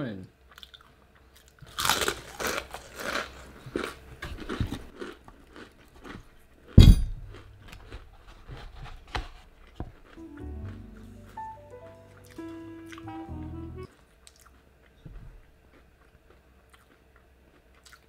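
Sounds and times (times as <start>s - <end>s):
crunching and chewing crispy food: 0.5s - 11.4s, 13.9s - 18.0s
loud thump: 6.8s - 7.3s
background music: 10.2s - 13.9s.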